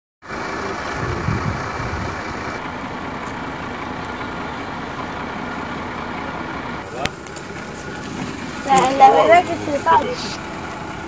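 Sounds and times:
outdoor rumble and hiss: 0:00.3 - 0:11.0
low bumps: 0:00.6 - 0:03.8.

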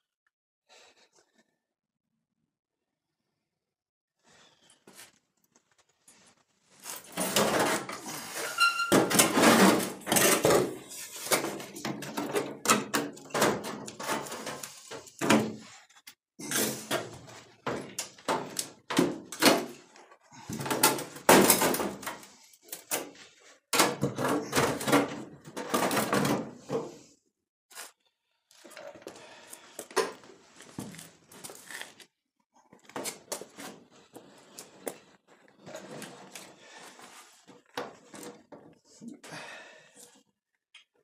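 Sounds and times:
sheet metal scraping and clanking: 0:07.1 - 0:15.4.

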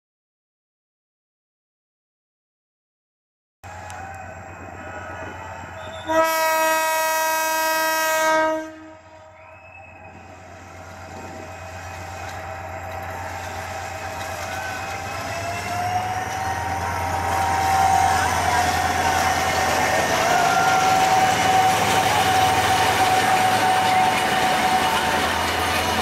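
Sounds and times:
train running noise: 0:03.6 - 0:26.0
locomotive engine: 0:03.7 - 0:26.0
locomotive horn blast: 0:05.8 - 0:09.4, 0:11.2 - 0:26.0.

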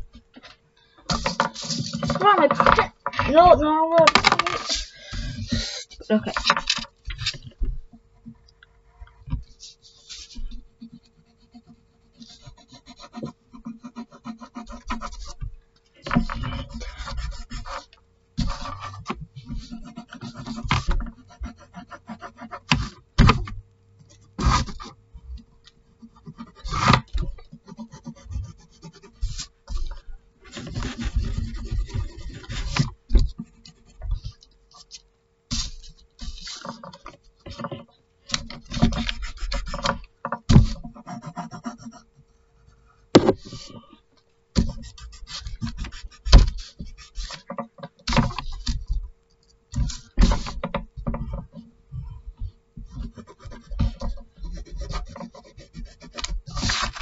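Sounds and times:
faint steady hum: 0:00.0 - 0:57.0
pencil scratching on paper: 0:01.1 - 0:03.5, 0:09.4 - 0:23.4, 0:24.1 - 0:25.0, 0:25.8 - 0:37.7, 0:38.3 - 0:42.1, 0:44.6 - 0:47.5, 0:49.8 - 0:51.4, 0:52.8 - 0:57.0.

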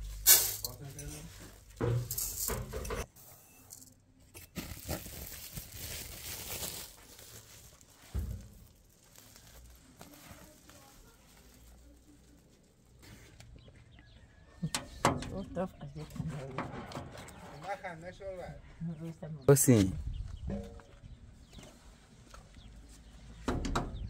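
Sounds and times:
plastic sack crinkling: 0:04.5 - 0:12.8.

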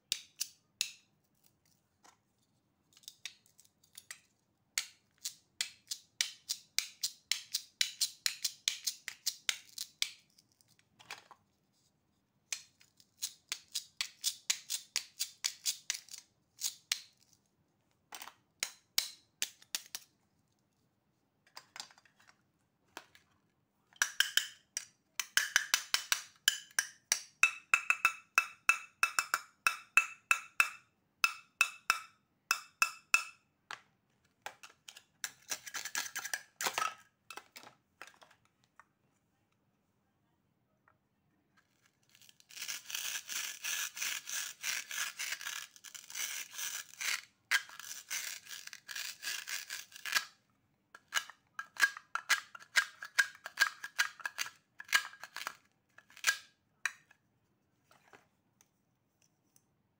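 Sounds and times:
velcro being pulled apart: 0:42.0 - 0:50.2.

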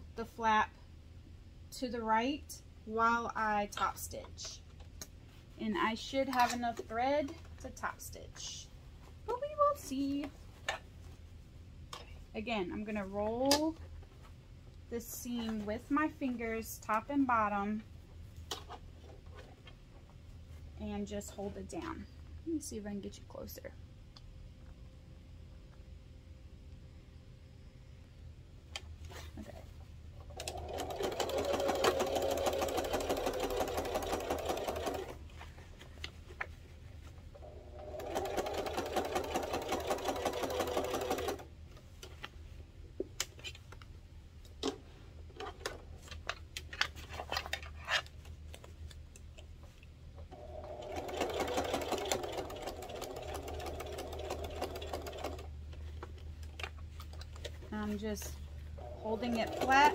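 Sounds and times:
sewing machine stitching: 0:30.4 - 0:35.2, 0:37.4 - 0:41.4, 0:50.3 - 0:55.5, 0:58.8 - 0:59.9.

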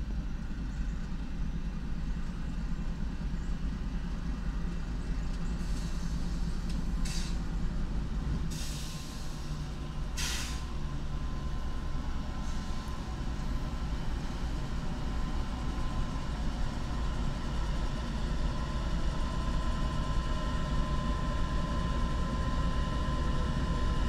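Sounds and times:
diesel locomotive engines rumbling: 0:00.0 - 0:24.0
air brake hiss: 0:05.6 - 0:07.4, 0:08.5 - 0:10.8.

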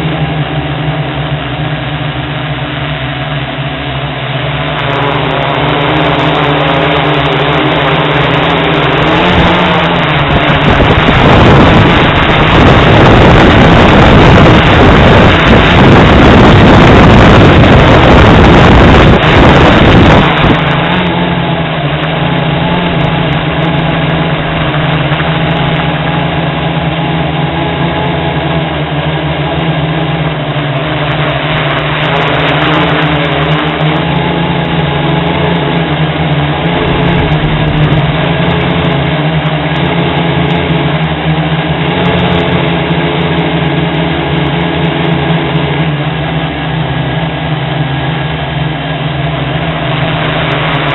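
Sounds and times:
drone propellers droning: 0:00.0 - 0:50.9
wind buffeting microphone: 0:04.6 - 0:29.3, 0:30.0 - 0:45.8.

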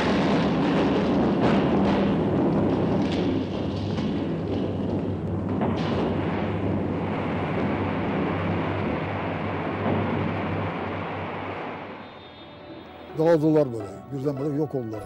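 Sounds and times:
heavy battle rumble: 0:00.0 - 0:11.8
sharp crack: 0:00.0 - 0:12.4.

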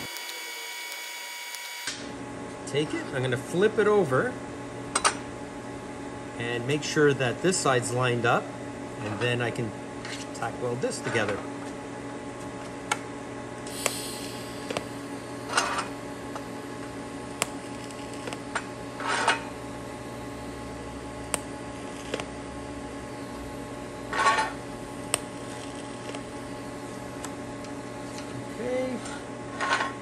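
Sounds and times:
welding arc bursts: 0:00.0 - 0:02.0, 0:13.7 - 0:15.1
welder machine hum: 0:00.0 - 0:30.0.

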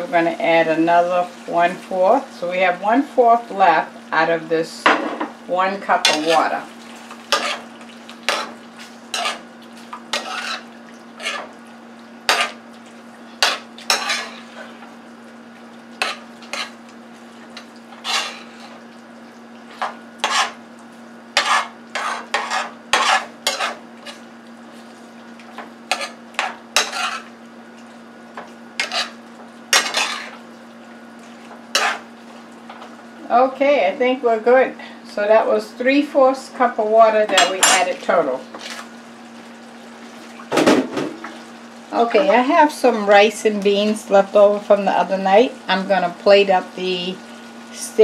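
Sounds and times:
metal spoon scraping a skillet: 0:07.3 - 0:07.7, 0:09.1 - 0:09.4, 0:10.1 - 0:11.5, 0:12.3 - 0:12.6, 0:13.4 - 0:14.4, 0:16.0 - 0:16.8, 0:18.0 - 0:18.8, 0:20.2 - 0:20.6, 0:21.4 - 0:24.2, 0:25.9 - 0:27.3, 0:28.8 - 0:30.4, 0:31.7 - 0:32.0.

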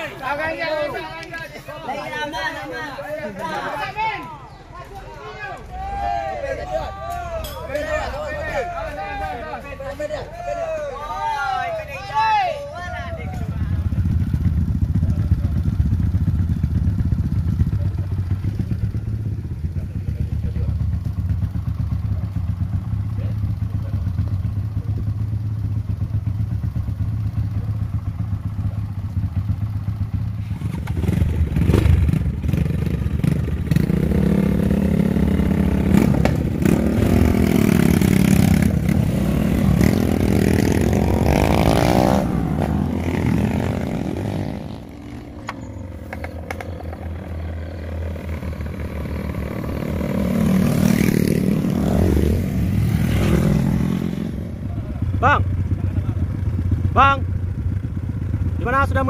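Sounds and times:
motorcycle engine revving: 0:12.9 - 0:59.0.

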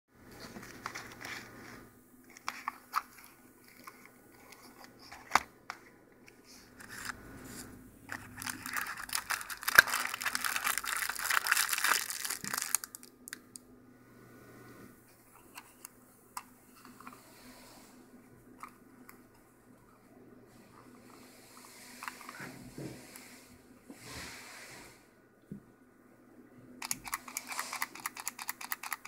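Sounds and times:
paper crinkling and rustling: 0:00.3 - 0:13.1.

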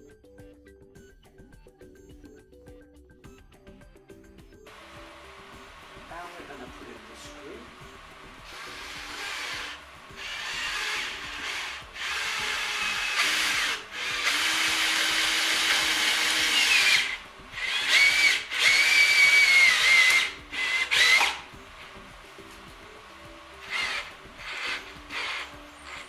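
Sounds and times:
cordless drill driving screw: 0:08.4 - 0:21.6, 0:23.6 - 0:26.0.

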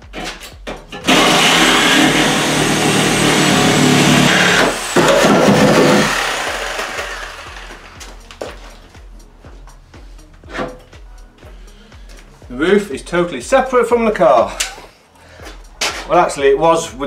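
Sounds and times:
power tool cutting steel: 0:01.0 - 0:08.0.

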